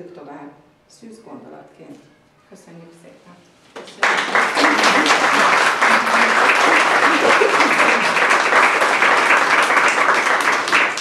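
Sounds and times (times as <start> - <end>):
people clapping: 3.8 - 11.0.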